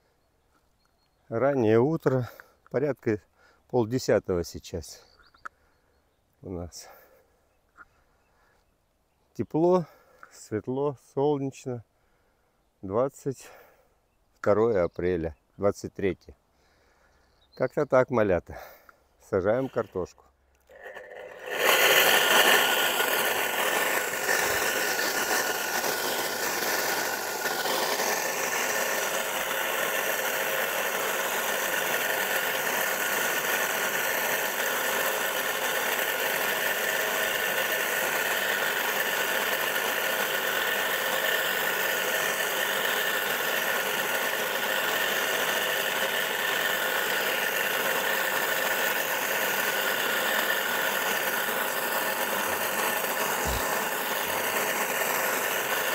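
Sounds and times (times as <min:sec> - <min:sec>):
electric motor whining: 0:20.6 - 0:55.9.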